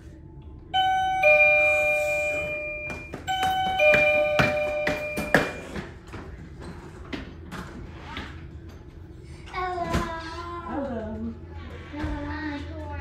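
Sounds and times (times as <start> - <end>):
two-note doorbell chime: 0.8 - 5.7
footsteps on hard floor: 2.3 - 5.9.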